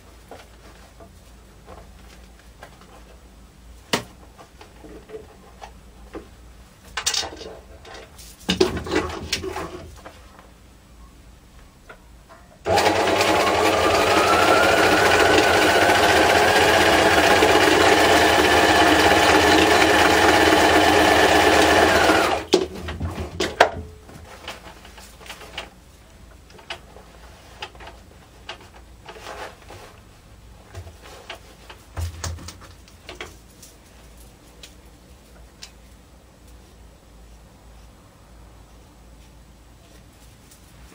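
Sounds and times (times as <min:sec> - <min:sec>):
sewing machine stitching: 0:12.7 - 0:22.6.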